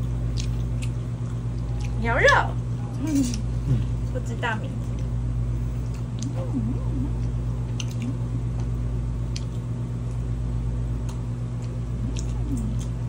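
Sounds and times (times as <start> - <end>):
steady low hum: 0.0 - 13.0
person chewing: 0.2 - 2.0, 5.8 - 10.3, 10.9 - 13.0
faint mouth clicks: 11.1 - 13.0.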